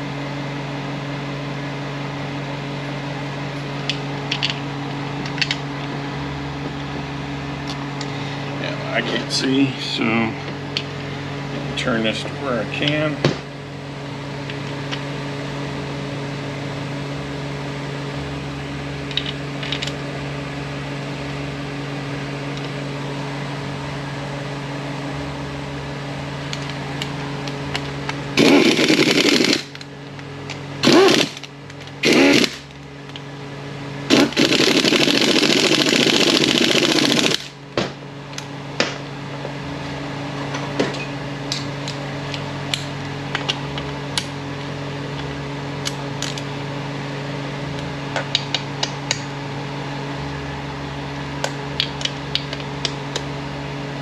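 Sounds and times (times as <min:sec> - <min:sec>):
steady background hum: 0:00.0 - 0:54.0
air ratchet running: 0:28.4 - 0:29.8, 0:30.8 - 0:32.7, 0:34.1 - 0:37.6.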